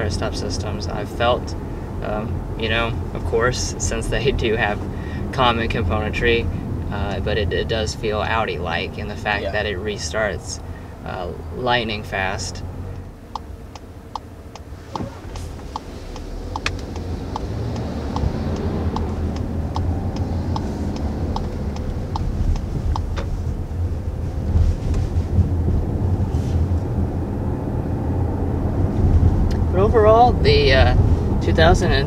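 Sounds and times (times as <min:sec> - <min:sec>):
engine and road noise rumble: 0:00.0 - 0:32.0
turn signal ticking: 0:12.1 - 0:26.0.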